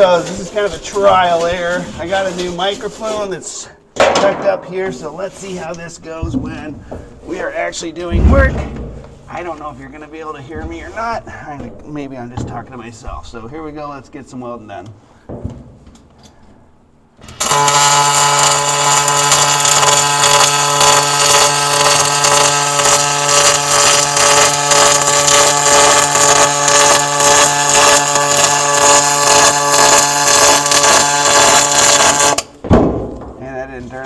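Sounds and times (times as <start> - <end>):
short knock: 8.1 - 9.3
welding arc buzzing hiss: 17.2 - 32.6.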